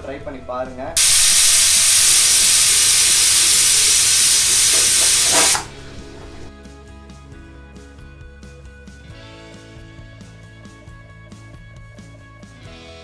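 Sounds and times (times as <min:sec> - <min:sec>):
pressure cooker steam hissing: 0:01.0 - 0:06.5.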